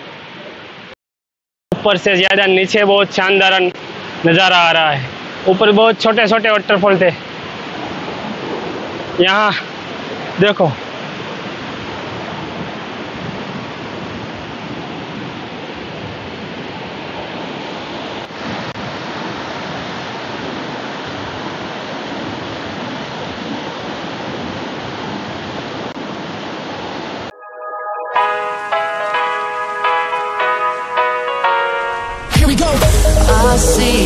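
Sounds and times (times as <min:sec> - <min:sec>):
music: 0:27.3 - 0:34.0.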